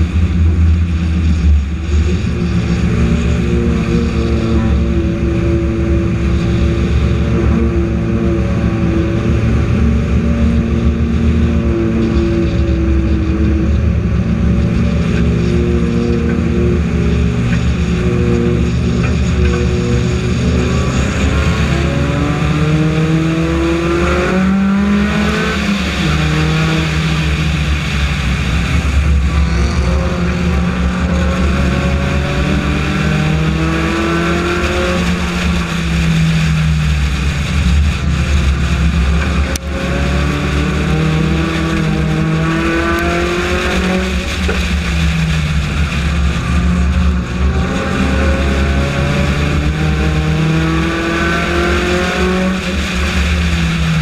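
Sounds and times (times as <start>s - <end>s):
race car engine revving: 0.0s - 54.0s
wind and road noise: 0.0s - 54.0s.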